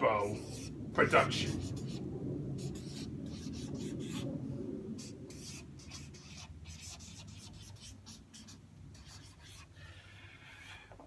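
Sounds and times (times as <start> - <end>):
marker pen writing on paper: 5.0 - 10.9.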